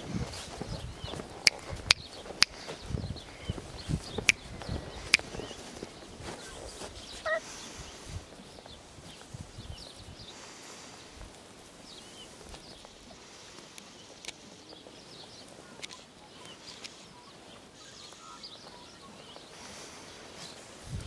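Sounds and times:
distant birds chirping: 0.0s - 20.8s
faint clicks: 4.1s - 5.9s, 12.4s - 19.4s.

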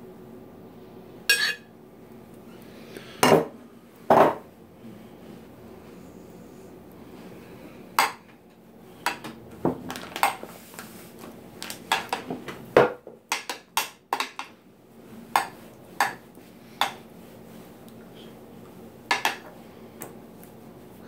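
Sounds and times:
metal spoon scraping glass dish: 1.3s - 1.6s.

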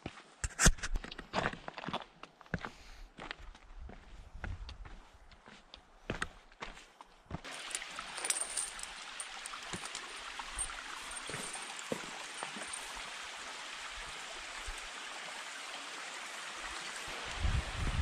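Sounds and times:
stones shifting underfoot: 7.4s - 12.9s.

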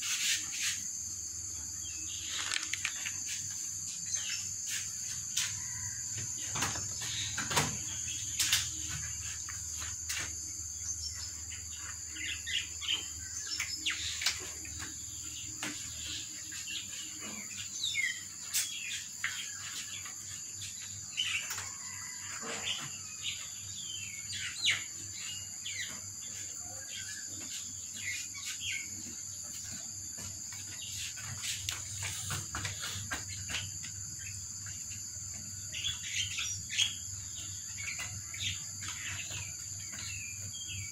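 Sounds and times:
high-pitched insect drone: 0.0s - 40.9s
bird chirps: 30.6s - 40.9s.

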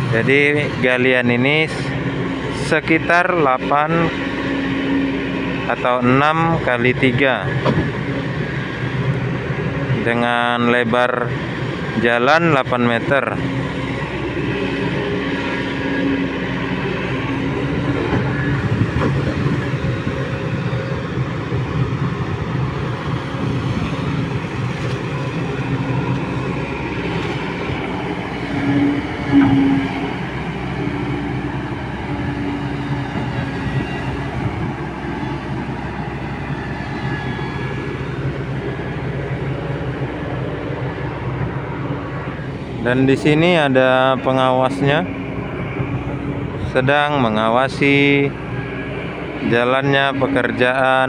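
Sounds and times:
excavator diesel engine: 0.0s - 51.0s
held tone: 28.4s - 32.6s.

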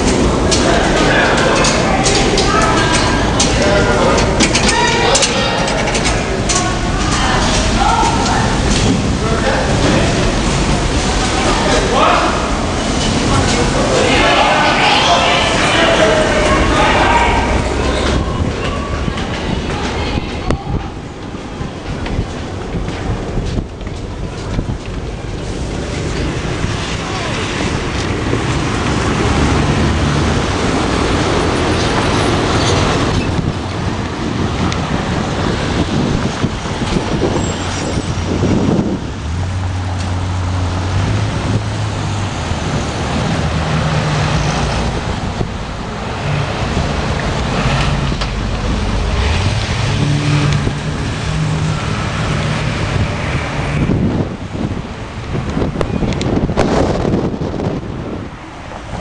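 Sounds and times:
cars and trucks passing: 0.0s - 59.0s
road noise rushing: 0.0s - 59.0s.

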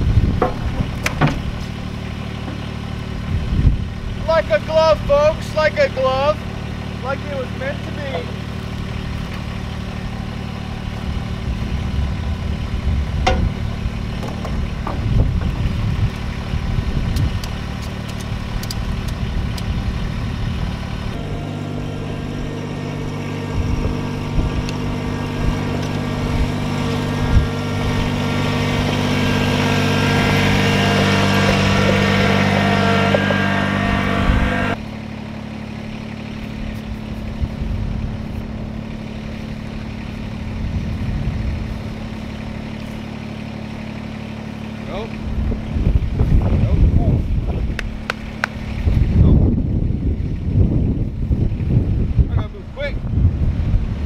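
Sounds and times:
tractor engine running: 0.0s - 54.0s
knocks and clatters: 0.2s - 1.8s, 2.4s - 2.7s, 13.2s - 15.6s.

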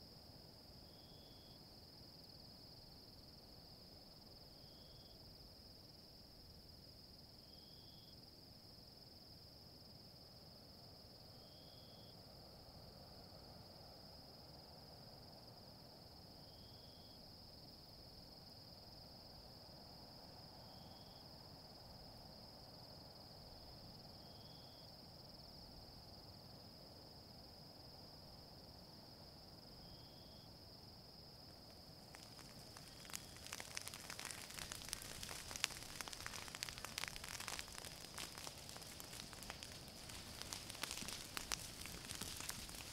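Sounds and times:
crickets trilling: 31.5s - 42.9s
fire crackling and popping: 32.0s - 42.9s.

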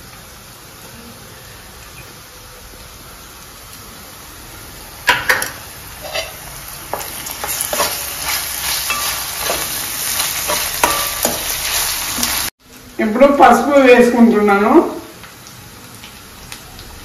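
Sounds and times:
food sizzling in oil: 0.0s - 17.0s
spoon scraping a pan: 5.3s - 12.3s.

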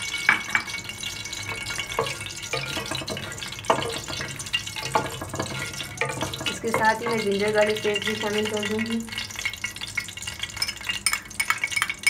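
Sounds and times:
spices sizzling in hot oil: 0.0s - 12.0s
spatula knocking against pot: 1.5s - 8.8s.

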